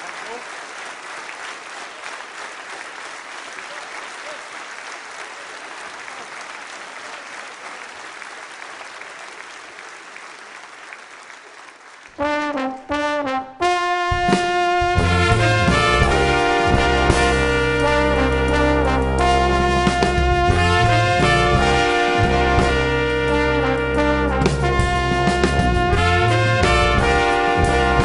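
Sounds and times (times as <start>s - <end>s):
audience applause: 0.0s - 12.8s, 15.0s - 23.7s
brass band playing: 12.2s - 28.0s
drums: 12.2s - 28.0s.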